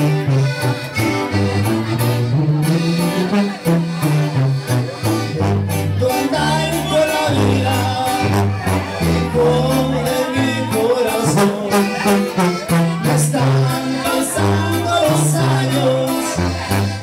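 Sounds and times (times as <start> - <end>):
accordion: 0.0 - 17.0
guitar: 0.0 - 17.0
tuba bass line: 0.0 - 17.0
person singing: 5.7 - 17.0.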